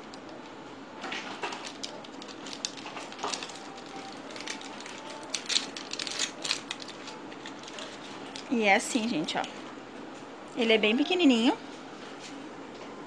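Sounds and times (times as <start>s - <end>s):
foil sachet crinkling and tearing: 1.0s - 8.6s.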